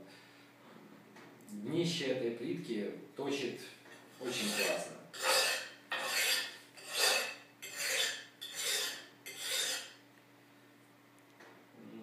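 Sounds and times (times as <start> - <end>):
knife rasping on ceramic tile: 4.2 - 10.0.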